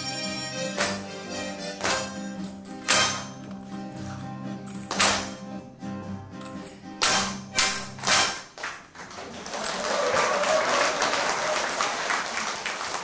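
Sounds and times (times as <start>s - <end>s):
harmonica ensemble chords: 0.0s - 4.7s
audience applause: 8.6s - 13.0s.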